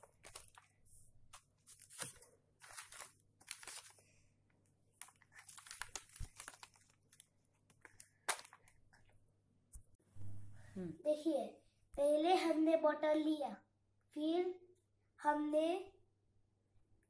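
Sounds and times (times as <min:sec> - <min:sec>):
newspaper crinkling and rustling: 0:00.0 - 0:04.2, 0:04.9 - 0:08.8.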